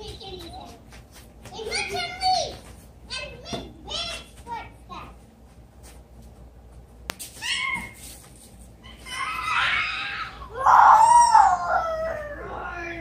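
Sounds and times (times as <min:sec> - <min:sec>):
children imitating animal noises: 0:08.9 - 0:13.0.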